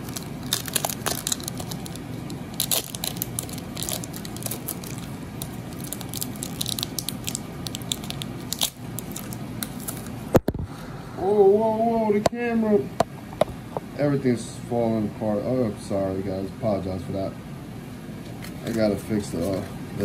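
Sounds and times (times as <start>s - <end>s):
foil wrapper crinkling: 0.0s - 10.2s.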